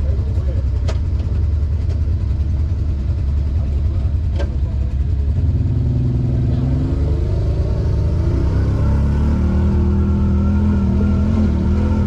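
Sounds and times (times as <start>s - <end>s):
off-road engines idling: 0.0s - 12.0s
second engine rising: 5.3s - 12.0s.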